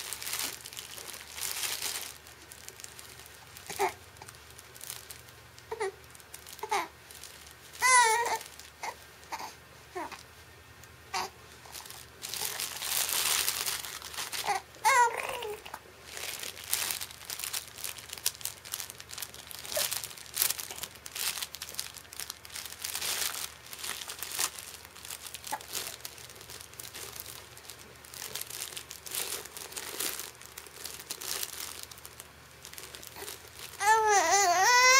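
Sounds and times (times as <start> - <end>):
crinkle material crackling: 0.0 - 34.9
baby babbling: 3.7 - 4.0, 5.7 - 6.0, 6.6 - 6.9, 7.8 - 10.2, 11.1 - 11.4, 14.4 - 15.8, 33.2 - 34.9.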